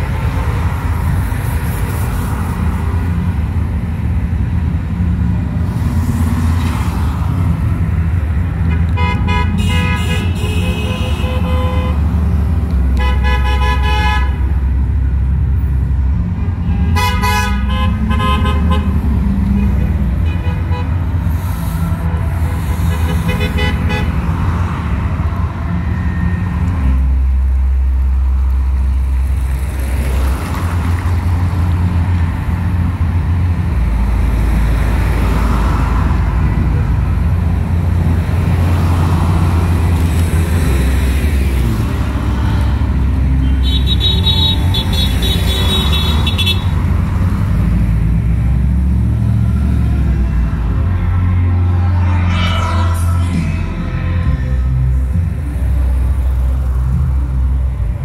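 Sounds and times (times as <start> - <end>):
traffic rumble: 0.0 - 58.0
car horns honking: 8.6 - 12.2, 12.9 - 14.5, 16.6 - 21.1, 22.7 - 24.4, 43.3 - 46.8.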